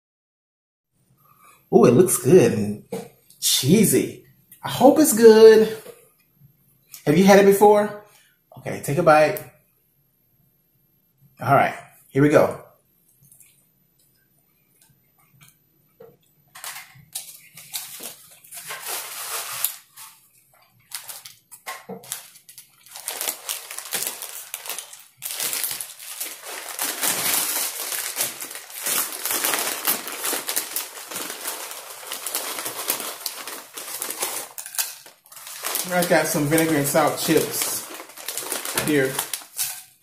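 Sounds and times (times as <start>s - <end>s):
plastic chip bag crinkling: 16.3s - 40.0s.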